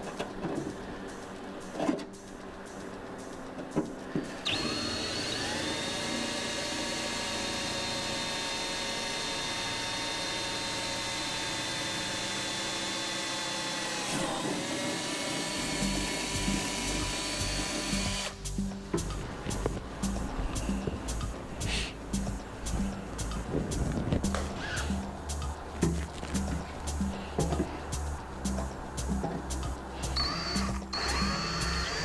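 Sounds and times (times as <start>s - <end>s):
power drill boring fiberglass: 4.4s - 18.4s, 30.1s - 32.0s.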